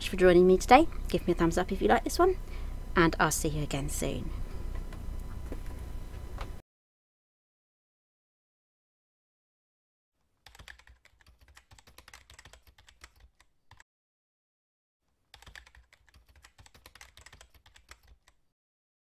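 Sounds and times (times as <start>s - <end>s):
rapid keyboard typing clicks: 10.4s - 13.8s, 15.3s - 18.4s.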